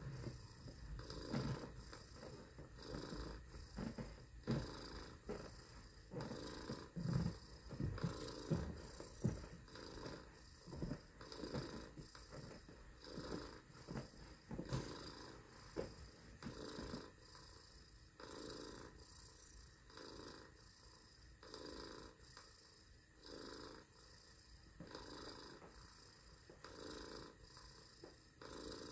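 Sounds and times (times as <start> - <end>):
person imitating a cat's purr: 0.0 - 17.6.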